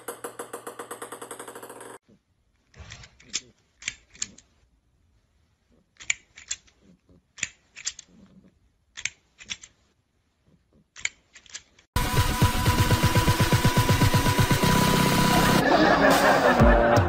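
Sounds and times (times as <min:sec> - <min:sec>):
plastic toy clicking: 0:06.0 - 0:08.2, 0:08.9 - 0:09.8
loud music with steady beat: 0:12.0 - 0:17.0.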